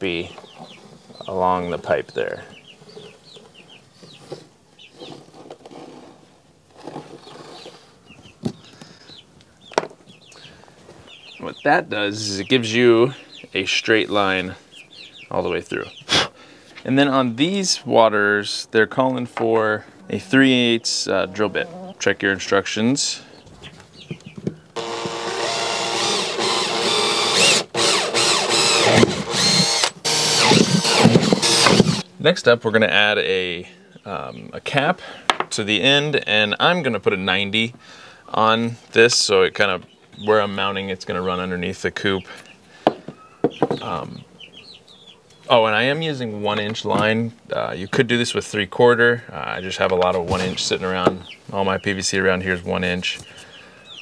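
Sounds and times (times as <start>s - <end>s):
chicks peeping: 0.0s - 5.6s, 6.8s - 17.8s, 18.5s - 32.1s, 38.0s - 54.0s
cordless drill whining: 24.8s - 32.0s.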